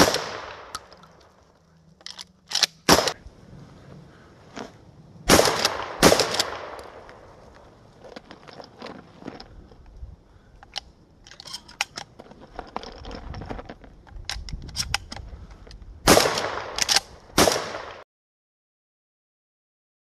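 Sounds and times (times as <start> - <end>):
shotgun shots: 0.0 - 0.7, 2.8 - 3.2, 5.3 - 7.0, 16.1 - 18.0
shotgun shells loading clicks: 0.1 - 2.9, 10.6 - 15.8, 16.4 - 17.2.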